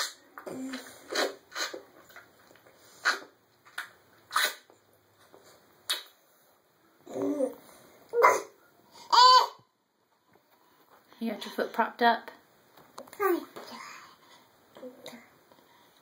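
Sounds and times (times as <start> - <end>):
baby sucking noises: 0.0 - 4.8.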